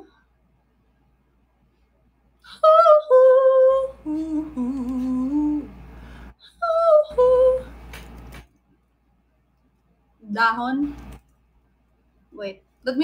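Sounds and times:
woman singing long notes: 0:02.5 - 0:05.7, 0:06.4 - 0:07.8.

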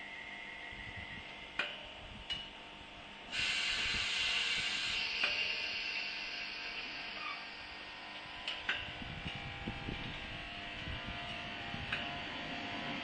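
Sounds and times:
compressed air hissing: 0:03.3 - 0:07.8.

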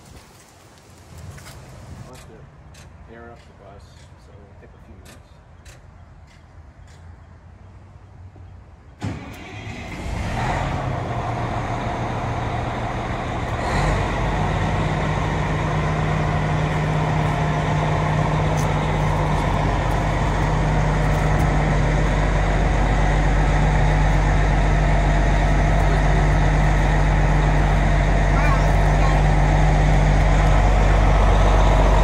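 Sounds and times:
diesel engine idling: 0:09.1 - 0:32.0.

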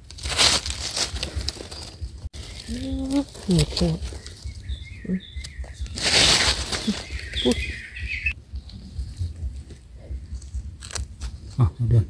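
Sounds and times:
low rumble: 0:00.0 - 0:12.0
bird calling in wavering voice: 0:02.4 - 0:08.4.

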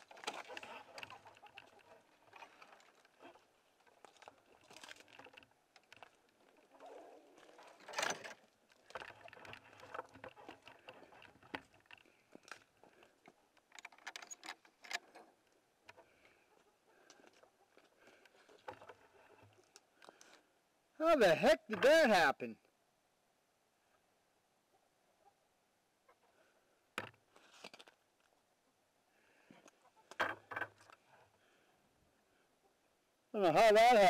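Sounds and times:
rustles and clicks: 0:00.0 - 0:20.4.

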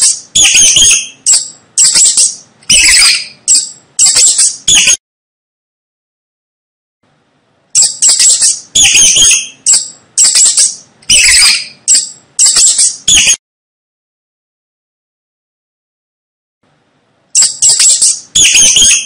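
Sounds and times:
mouse squeaking: 0:00.0 - 0:05.0, 0:07.8 - 0:13.4, 0:17.3 - 0:19.0.

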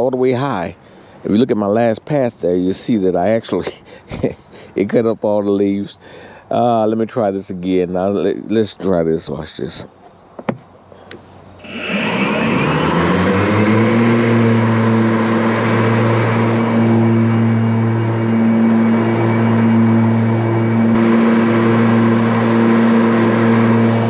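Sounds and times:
mower blades whining: 0:11.2 - 0:24.0
mower mulching leaves: 0:11.6 - 0:24.0.

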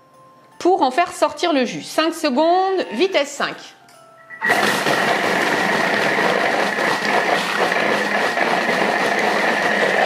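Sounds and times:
food processor whining: 0:04.4 - 0:10.0
blade chopping fruit: 0:04.5 - 0:10.0.

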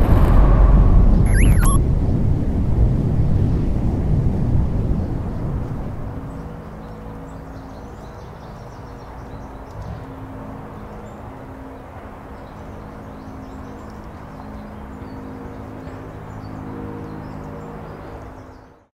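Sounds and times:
rocket rumble: 0:00.0 - 0:06.0
faint bird chirps: 0:01.3 - 0:01.8.

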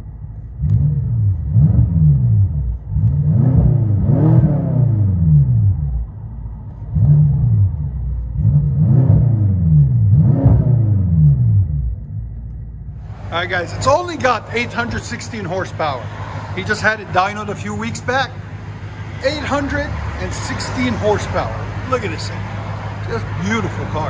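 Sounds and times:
car engine revving: 0:00.0 - 0:24.0.

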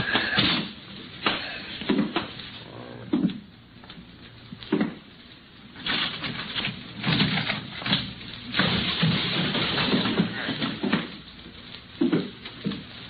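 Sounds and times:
loud crashes and smashing: 0:05.8 - 0:11.2.

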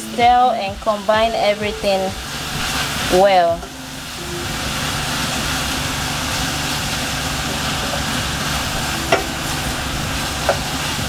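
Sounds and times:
food hissing in a pan: 0:01.8 - 0:11.0
spoon knocking against pan: 0:09.1 - 0:09.4.

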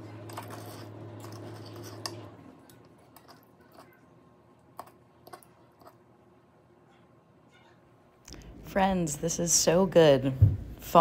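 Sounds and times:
low steady hum: 0:00.0 - 0:11.0
knife and fork cutting on glass plate: 0:00.3 - 0:02.2.

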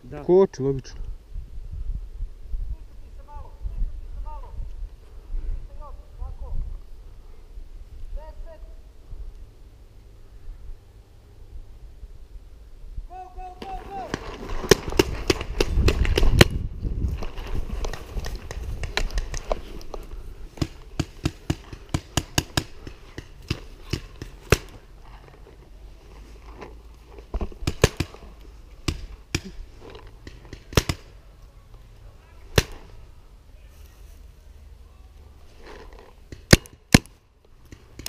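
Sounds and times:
paintball markers firing: 0:13.6 - 0:16.6, 0:17.8 - 0:20.0, 0:20.6 - 0:24.8, 0:27.4 - 0:29.6, 0:30.2 - 0:31.1, 0:36.3 - 0:38.0
running and gear jostling: 0:13.8 - 0:28.3.

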